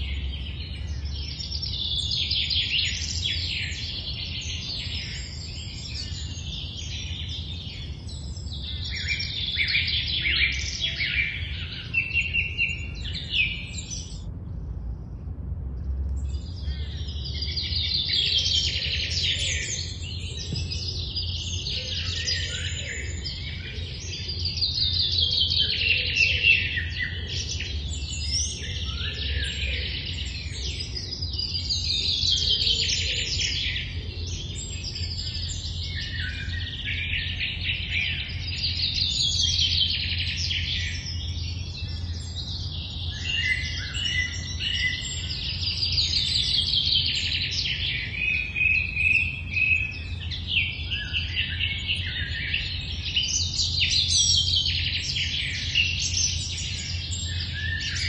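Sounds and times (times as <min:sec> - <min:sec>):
birds chirping: 0:00.0 - 0:14.6, 0:15.3 - 0:58.0
low rumble: 0:12.7 - 0:18.2.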